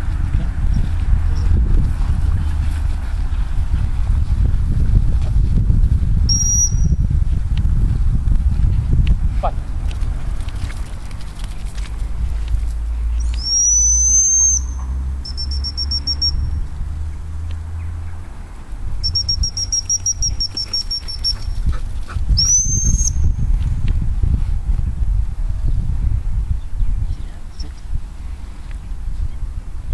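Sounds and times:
dog whistle blasts and pips: 6.3 - 7.0, 13.3 - 16.5, 19.0 - 21.6, 22.4 - 23.3.

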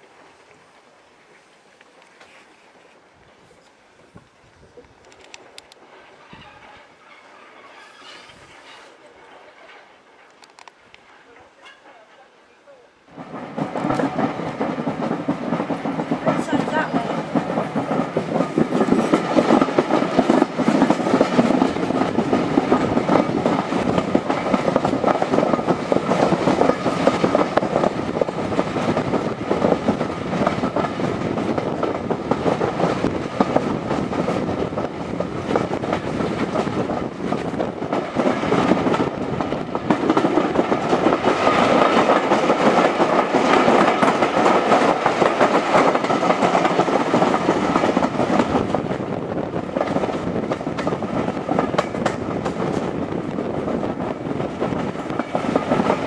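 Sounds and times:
train carriage rumble and rattle: 0.0 - 12.5, 13.1 - 56.0
wheels clacking over rail joints: 5.0 - 12.3, 13.1 - 56.0.

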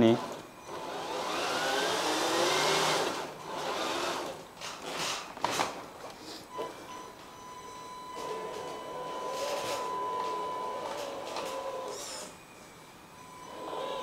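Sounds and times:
electric motor whining: 0.0 - 5.1, 8.2 - 12.6, 13.2 - 14.0.

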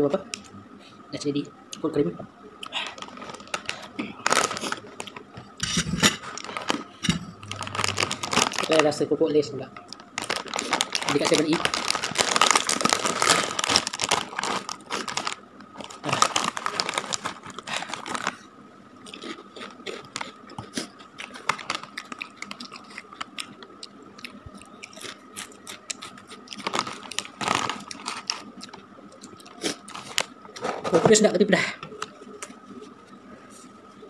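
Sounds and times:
chips crunched and chewed: 2.6 - 5.3, 6.0 - 9.0, 9.8 - 18.4, 19.0 - 30.4
plastic bag crinkling: 2.8 - 5.3, 6.2 - 9.0, 9.9 - 18.4, 21.0 - 23.4, 26.4 - 28.8.

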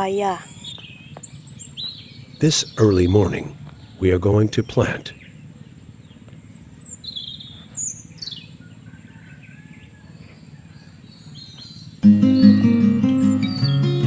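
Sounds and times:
low background hum: 0.0 - 12.0
bird chirps: 0.0 - 14.0.

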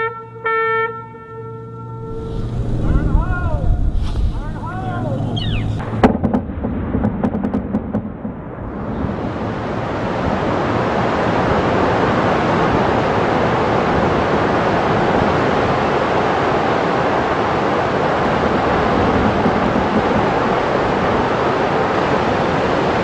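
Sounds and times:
water rushing out of a dam: 8.8 - 23.0.

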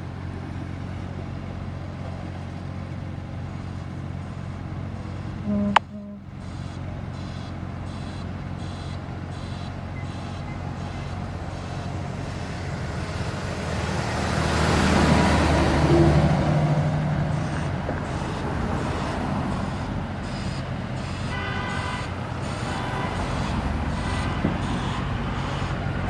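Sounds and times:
road traffic: 0.0 - 26.0
truck passing close by: 0.0 - 26.0
short pitched tone: 5.4 - 6.3.

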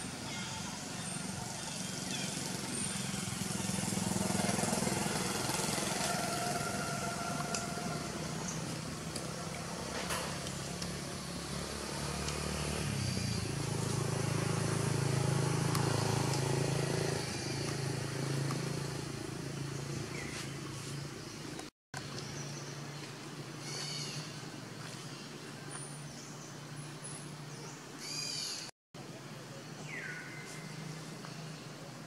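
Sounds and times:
engine humming: 1.0 - 25.2.

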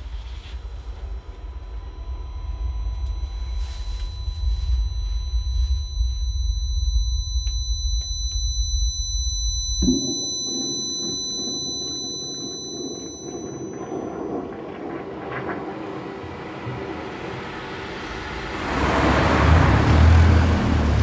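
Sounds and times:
high ringing tones: 1.1 - 15.6.

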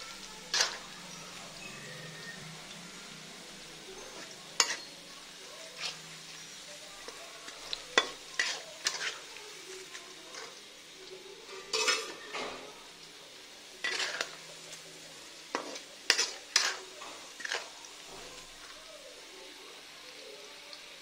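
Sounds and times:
onions sizzling in oil: 0.0 - 21.0
metal spatula scraping pan: 0.5 - 2.4, 3.9 - 6.1, 7.6 - 9.3, 11.4 - 12.7, 13.8 - 14.8, 15.5 - 18.5.

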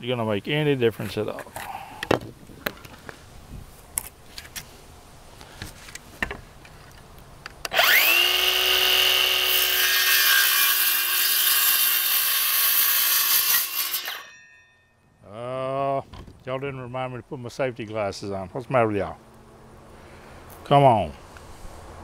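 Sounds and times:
circular saw cutting wood: 7.7 - 14.4.

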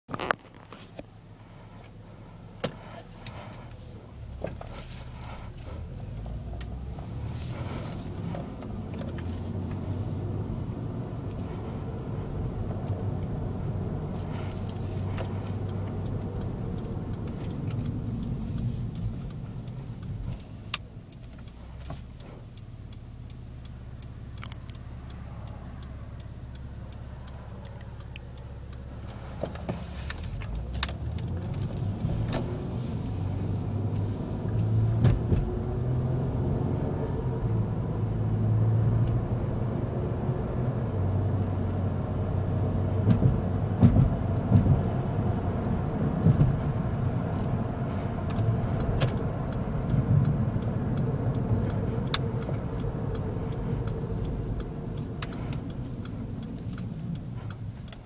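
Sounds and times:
car engine hum: 0.0 - 58.0
road noise: 0.0 - 58.0
sharp clicks: 14.0 - 32.5, 47.3 - 58.0.

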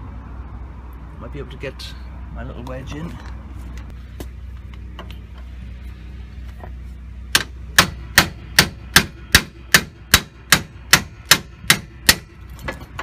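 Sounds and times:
hammer striking metal wedge: 7.3 - 13.0.

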